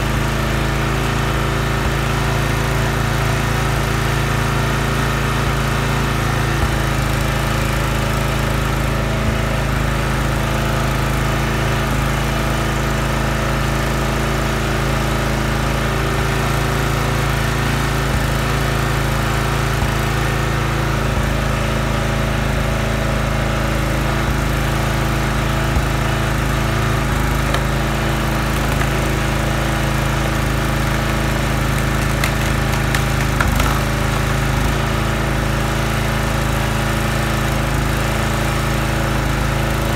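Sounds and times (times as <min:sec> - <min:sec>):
small engine running steadily: 0:00.0 - 0:39.9
wood knocks: 0:27.5 - 0:27.7, 0:31.8 - 0:34.0.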